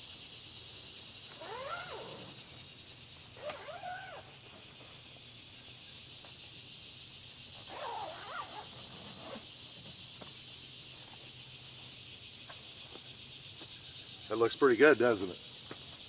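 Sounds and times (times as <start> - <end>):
insects droning: 0.0 - 16.0
animal cry: 1.4 - 2.4.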